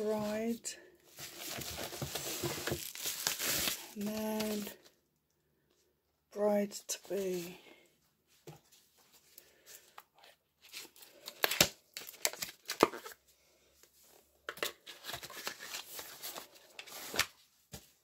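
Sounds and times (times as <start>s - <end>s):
packaging crinkling and rustling: 1.1s - 4.8s, 10.6s - 13.2s, 14.5s - 17.4s.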